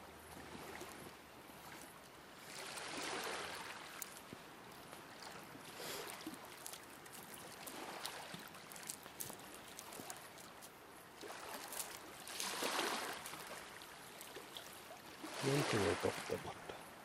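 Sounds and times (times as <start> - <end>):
waves lapping on rocky shore: 0.0 - 17.0
stones crunching underfoot: 6.3 - 10.8.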